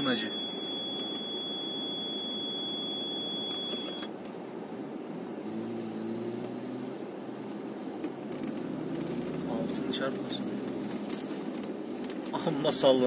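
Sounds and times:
high electronic beep: 0.0 - 4.1
engine running inside cabin: 0.0 - 11.8.

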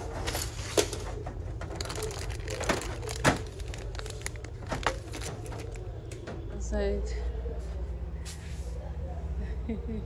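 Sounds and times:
low hum of store: 0.0 - 10.0
packaging being handled: 1.7 - 5.9
packaging crinkling: 1.7 - 5.9.

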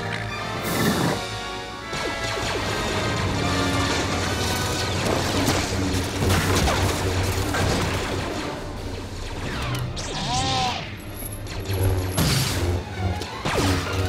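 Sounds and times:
film soundtrack music: 0.0 - 14.0
blaster shots: 4.4 - 12.8, 13.4 - 14.0.

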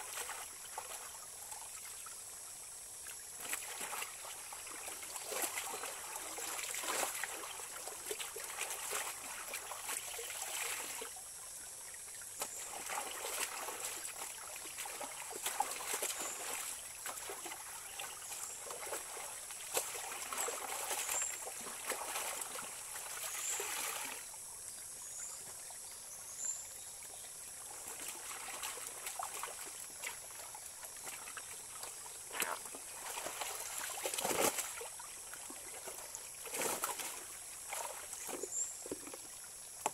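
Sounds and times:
stony stream running: 0.0 - 39.9
laundry splashing in water: 3.4 - 11.1, 12.4 - 24.2, 27.7 - 39.2.

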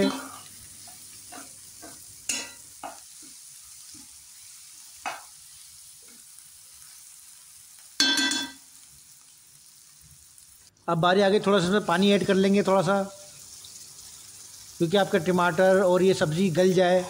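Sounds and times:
faint oil sizzle: 0.0 - 17.0
sharp metallic clank: 8.0 - 8.6.

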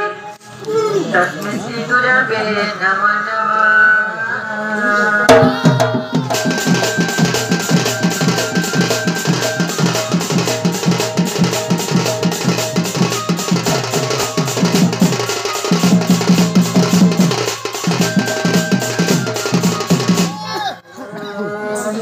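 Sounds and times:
person singing: 3.2 - 22.0
barrel drum beating fast: 5.3 - 20.7.

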